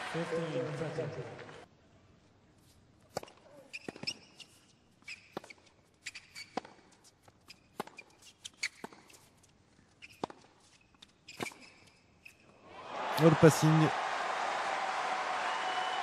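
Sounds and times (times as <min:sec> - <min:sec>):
shoes squeaking on court: 0:02.6 - 0:12.6.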